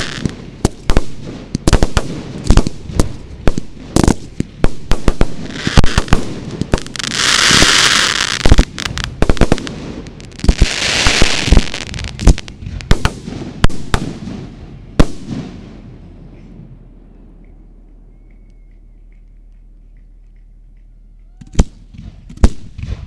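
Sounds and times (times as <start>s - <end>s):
fireworks bangs and cracks: 0.0s - 15.6s
loud fireworks hissing: 0.0s - 15.7s.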